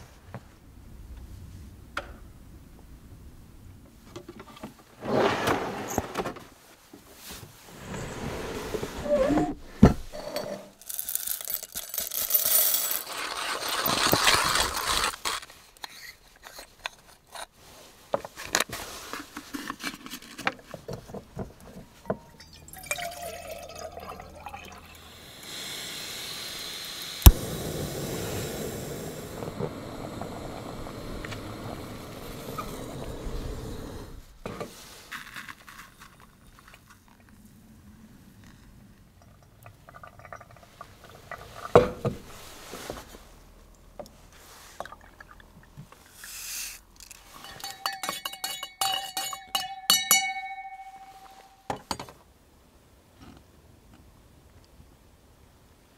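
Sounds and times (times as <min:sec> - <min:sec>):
water pouring into kettle: 0:22.3 - 0:27.4
gas stove hissing: 0:25.0 - 0:34.4
coffee gear knocking and rustling: 0:47.0 - 0:52.2.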